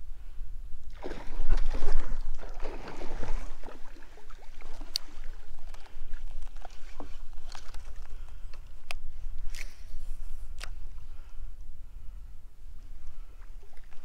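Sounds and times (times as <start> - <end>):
water splashing around kayak: 0.9 - 9.2.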